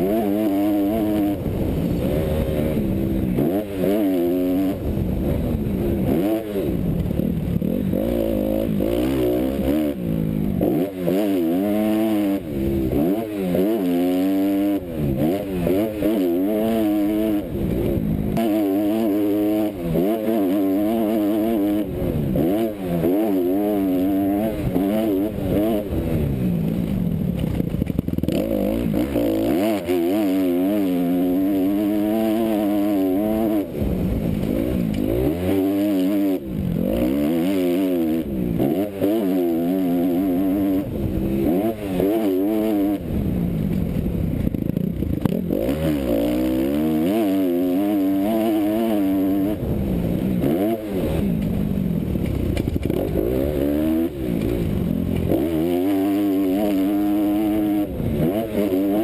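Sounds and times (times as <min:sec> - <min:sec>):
motocross engine revving: 0:00.0 - 0:59.0.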